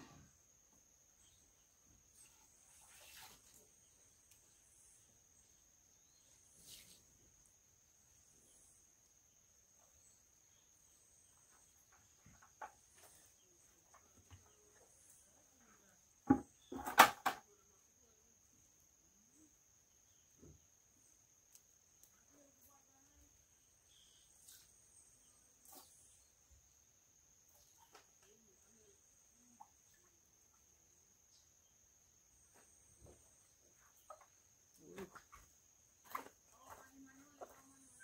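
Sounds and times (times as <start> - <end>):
plastic bucket knocking on ground: 16.2 - 17.4.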